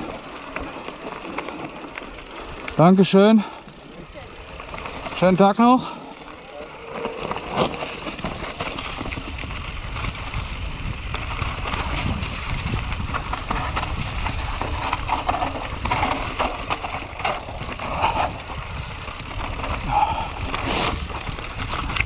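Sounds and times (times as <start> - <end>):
tyres crunching over leaves and stones: 0.0 - 22.0
bike knocks and rattles: 4.5 - 22.0
wind rumble on microphone: 7.4 - 22.0.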